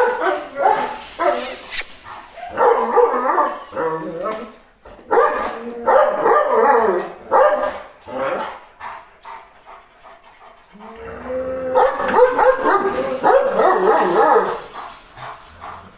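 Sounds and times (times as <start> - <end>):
dogs barking: 0.0 - 1.4, 5.0 - 8.6, 11.7 - 15.9.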